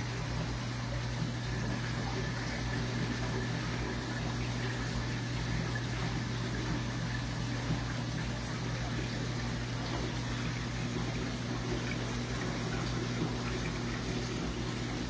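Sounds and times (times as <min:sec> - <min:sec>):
pump humming: 0:00.0 - 0:15.0
water rushing and trickling: 0:00.0 - 0:15.0.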